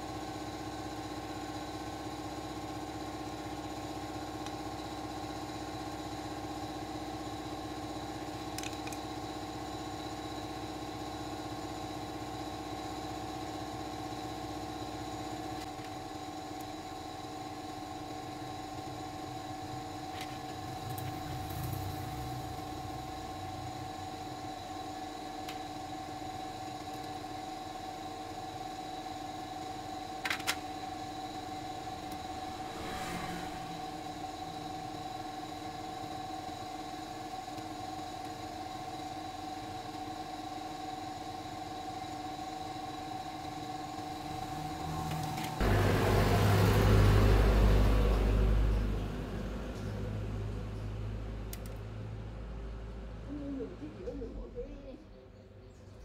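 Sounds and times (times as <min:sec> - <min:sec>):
machine hum: 0:13.0 - 0:38.6.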